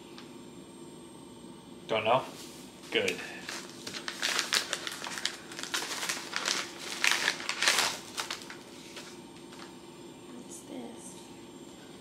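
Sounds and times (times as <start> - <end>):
paper mailer crinkling: 2.9 - 9.7.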